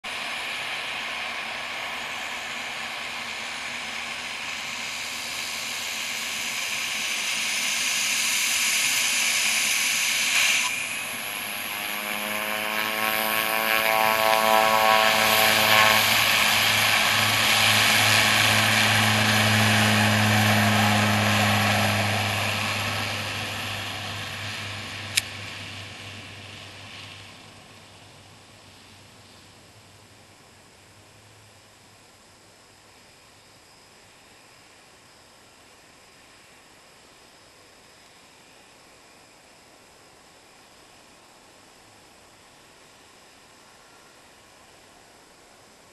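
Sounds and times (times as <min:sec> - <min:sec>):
turboprop plane taxiing: 0:00.0 - 0:31.4
sharp click: 0:25.1 - 0:25.3.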